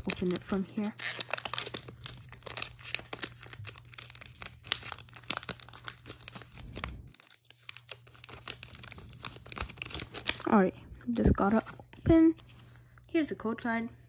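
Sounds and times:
foil wrapper tearing and crinkling: 0.0 - 10.6.

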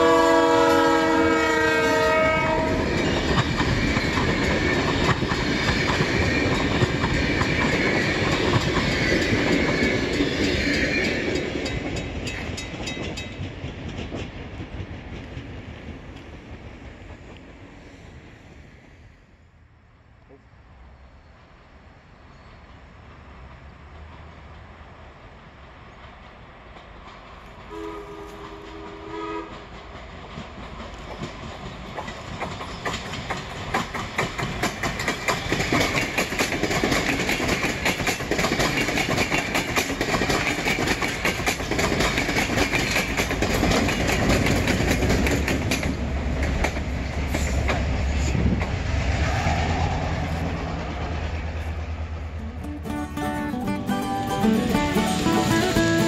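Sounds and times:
train horn blast: 0.0 - 3.0, 27.7 - 29.7, 52.4 - 56.0
wheels clacking over rail joints: 0.0 - 17.7, 25.8 - 49.4
train rumble passing: 0.0 - 56.0.

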